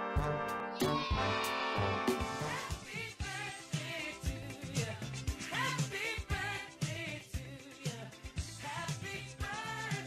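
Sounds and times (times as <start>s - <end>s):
soul-funk song: 0.0s - 10.0s
bass line: 0.2s - 3.0s
person singing: 0.7s - 10.0s
drum beat: 0.8s - 7.0s.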